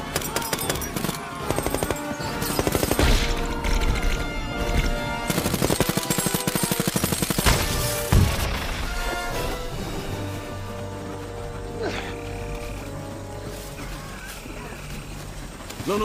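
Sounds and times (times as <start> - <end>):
dramatic background music: 0.0 - 16.0
automatic gunfire bursts: 5.1 - 7.9.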